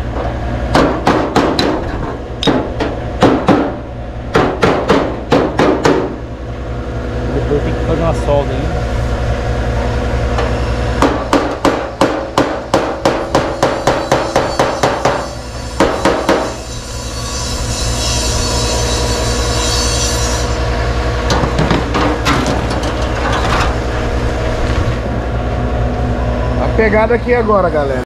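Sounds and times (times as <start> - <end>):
steady low hum: 0.0 - 28.0
hammer on sheet metal: 0.7 - 6.2, 11.0 - 16.8.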